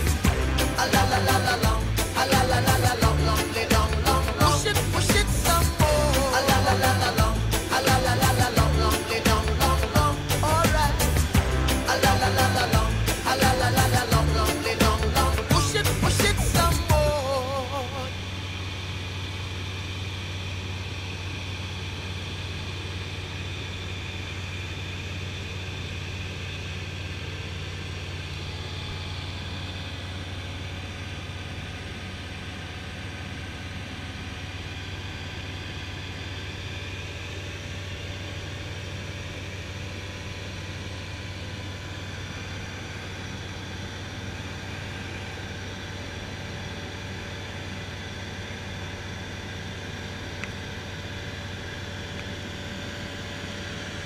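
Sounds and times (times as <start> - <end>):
airflow noise: 0.0 - 18.4
aircraft engine drone: 0.0 - 54.0.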